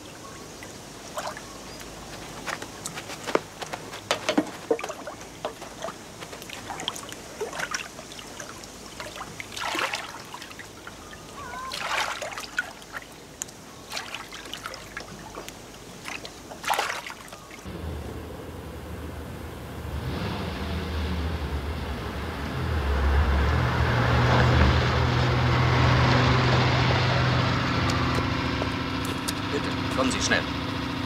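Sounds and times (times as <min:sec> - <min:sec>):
oars splashing through water: 0:00.0 - 0:17.7
water trickling off oars: 0:00.0 - 0:17.7.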